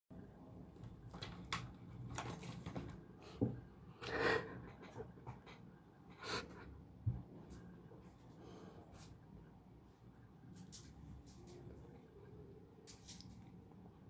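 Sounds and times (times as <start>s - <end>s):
person breathing: 8.3s - 9.1s.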